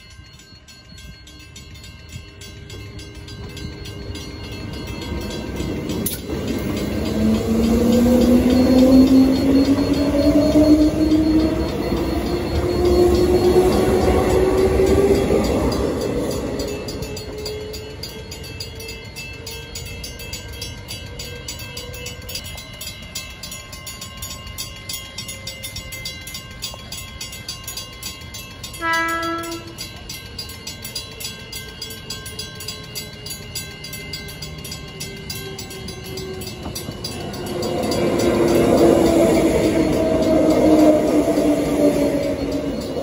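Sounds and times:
level crossing bells ringing: 0.0s - 43.0s
train passing: 0.0s - 43.0s
electric train motor whine: 2.1s - 18.1s
train horn blast: 28.8s - 29.8s.

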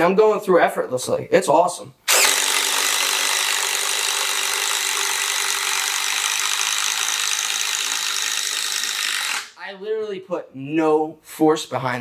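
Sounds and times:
drill bit chewing through wood: 2.1s - 9.6s
impact driver motor whine: 2.1s - 9.6s.

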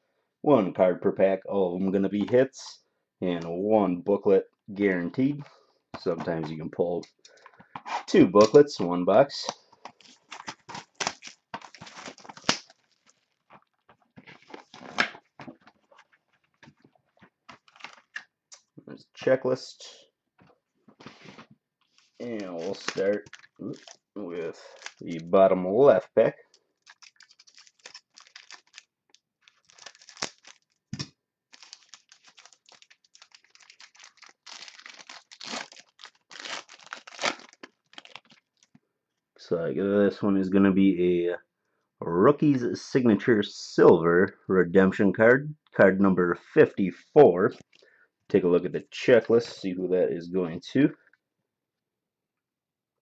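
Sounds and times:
cardboard and wrapper rustling: 9.8s - 18.2s, 21.0s - 25.4s, 26.6s - 38.8s.

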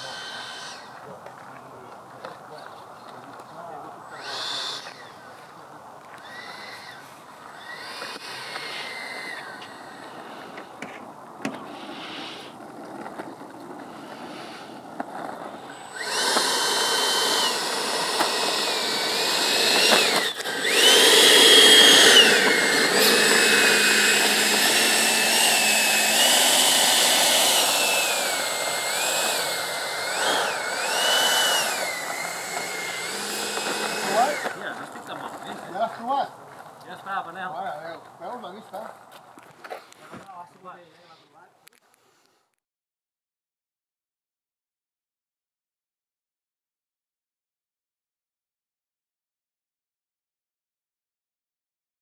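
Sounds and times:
electric ducted fan whining: 0.0s - 1.9s, 15.5s - 35.9s.

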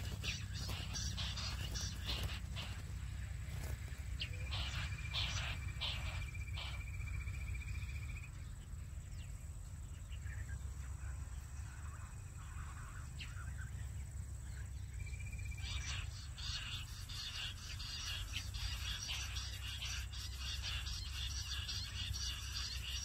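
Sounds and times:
quail trilling call: 0.0s - 8.6s, 15.0s - 23.0s.

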